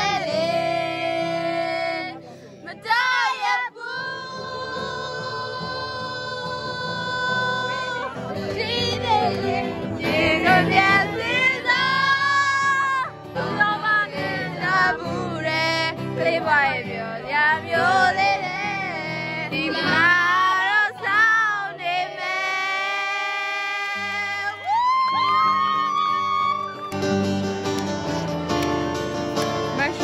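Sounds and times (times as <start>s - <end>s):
instrumental backing: 25.3s - 30.0s.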